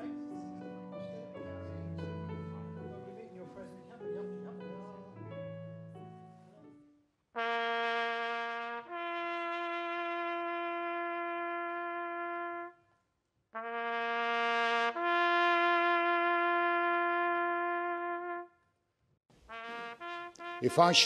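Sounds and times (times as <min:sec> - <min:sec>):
brass horn bugle call: 0:07.4 - 0:12.8, 0:13.6 - 0:18.5, 0:19.5 - 0:21.0.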